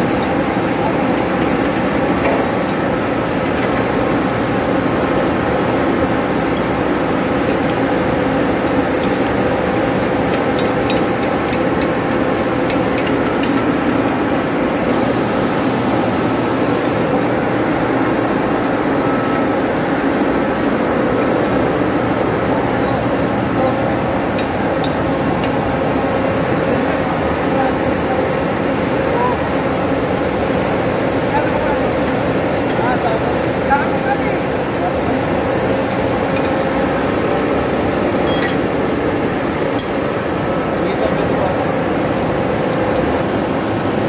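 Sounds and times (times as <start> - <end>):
machinery humming: 0.0 - 44.0
hammer and chisel tapping metal: 3.0 - 3.9, 38.2 - 38.6, 39.7 - 40.2.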